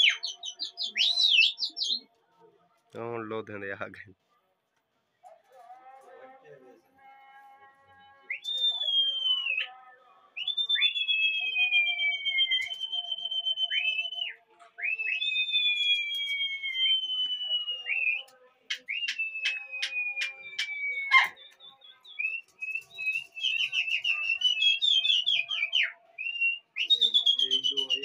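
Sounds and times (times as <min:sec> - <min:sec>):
people whistling to pigeons: 0:00.0 - 0:02.1, 0:08.2 - 0:09.8, 0:10.4 - 0:28.0.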